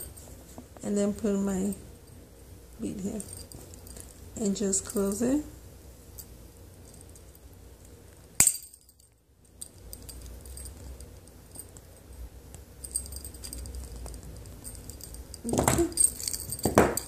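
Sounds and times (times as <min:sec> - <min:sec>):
handling noise: 0:02.9 - 0:04.3, 0:06.1 - 0:17.0.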